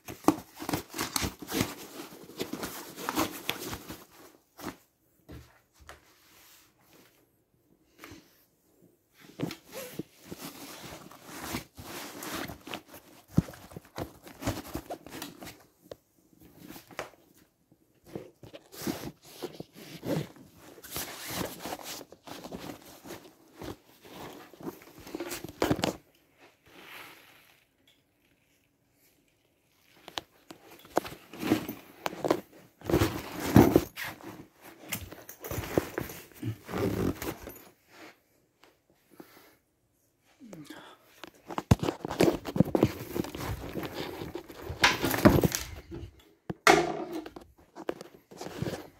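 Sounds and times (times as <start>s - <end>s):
fabric bag rustling: 30.0s - 37.8s, 41.5s - 46.1s.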